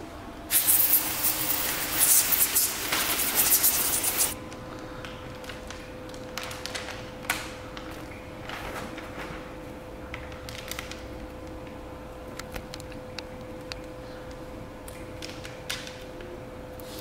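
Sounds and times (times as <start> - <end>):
plastic film crackling: 5.3 - 9.1.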